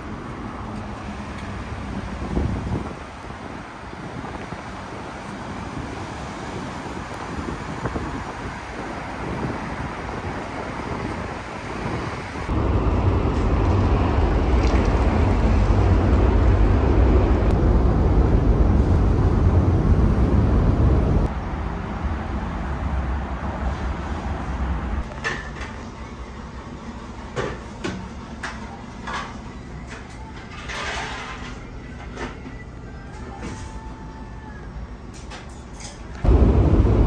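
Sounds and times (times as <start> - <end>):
road traffic noise: 0.0 - 37.0
low rumble: 12.5 - 22.8, 36.2 - 37.0.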